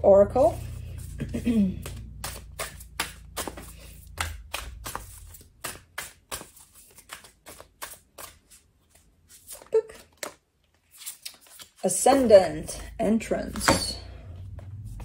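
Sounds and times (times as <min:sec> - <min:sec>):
cards being shuffled: 0:00.5 - 0:12.3.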